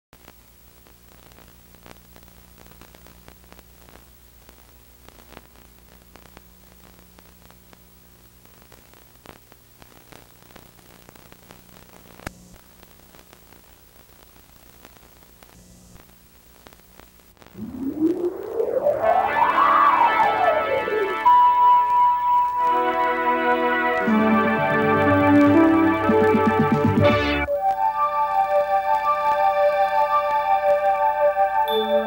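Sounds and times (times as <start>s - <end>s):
faint clicks and crackles: 0.2s - 19.2s
low mains hum: 0.2s - 22.6s
tape hiss: 0.2s - 32.0s.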